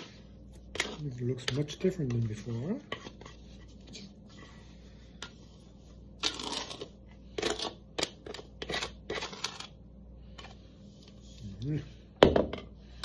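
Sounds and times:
dough scraper scraping dough: 0:06.2 - 0:09.7.

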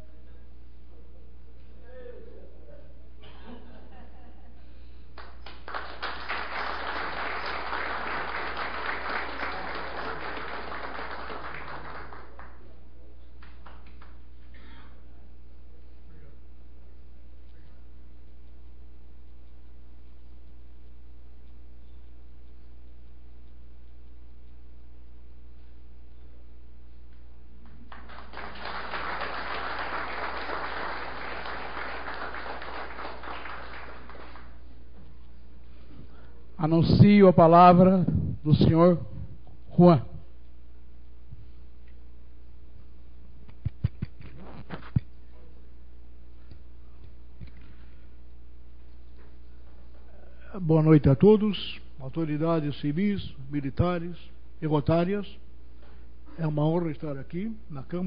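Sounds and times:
audience applauding: 0:05.2 - 0:12.7, 0:27.6 - 0:34.8.

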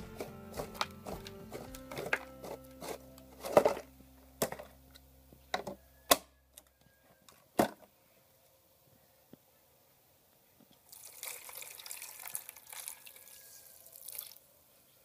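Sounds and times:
background music: 0:00.0 - 0:06.0.

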